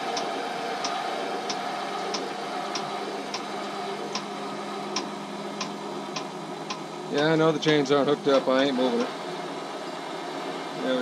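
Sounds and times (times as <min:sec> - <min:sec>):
electric jack motor hum: 0:00.0 - 0:11.0
sharp ticks: 0:05.0 - 0:08.5.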